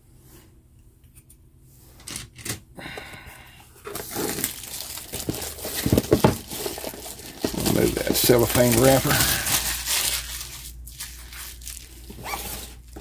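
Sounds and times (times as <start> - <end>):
cellophane wrapper crinkling: 4.0 - 13.0.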